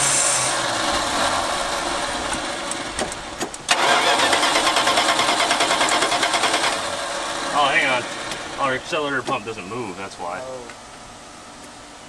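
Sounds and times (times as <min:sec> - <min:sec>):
starter cranking engine: 0:00.0 - 0:07.3.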